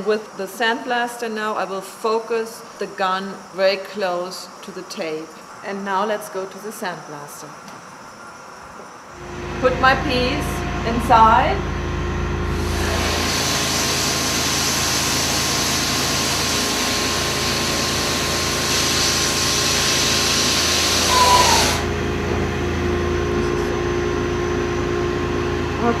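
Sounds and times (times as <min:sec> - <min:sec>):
sandblasting nozzle hissing: 0:12.5 - 0:22.0
machine hum: 0:14.3 - 0:26.0.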